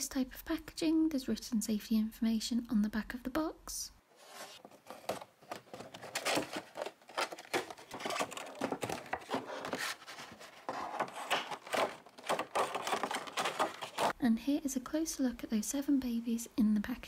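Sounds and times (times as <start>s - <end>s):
packaging rustling and crinkling: 4.2s - 14.2s.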